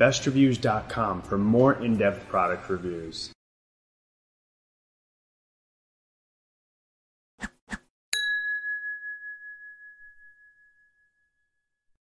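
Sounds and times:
bright chime ringing: 8.2s - 11.8s.

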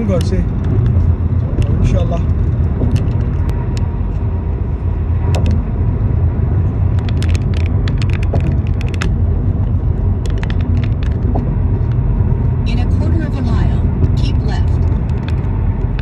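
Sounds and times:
road and tyre rumble: 0.0s - 16.0s.

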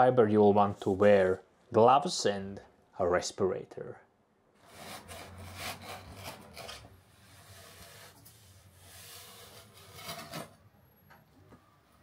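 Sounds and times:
fibers rubbing: 4.6s - 10.5s
knife scraping through fiber sheet: 4.6s - 10.5s.

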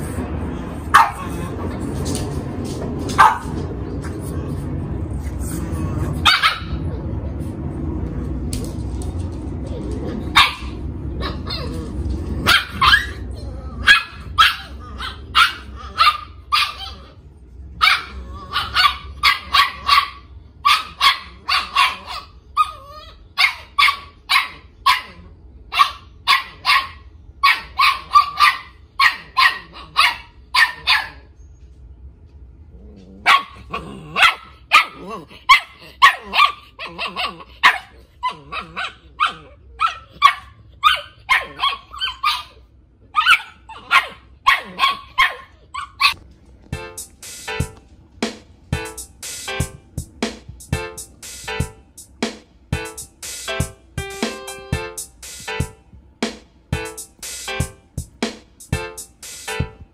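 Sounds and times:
puppy yapping: 0.9s - 1.5s, 3.2s - 3.5s, 6.2s - 7.0s, 10.3s - 17.2s, 17.8s - 31.3s, 33.2s - 46.2s.

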